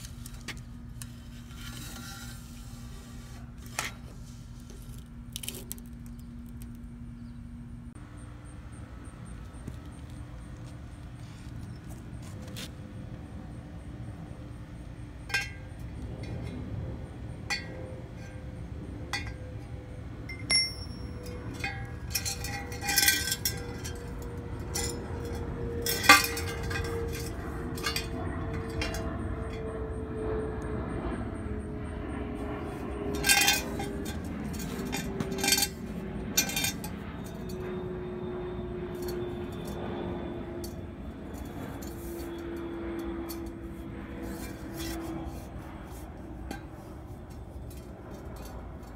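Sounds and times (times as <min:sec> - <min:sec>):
metal clinking on concrete: 0:20.3 - 0:29.6, 0:33.1 - 0:35.8, 0:36.4 - 0:37.7.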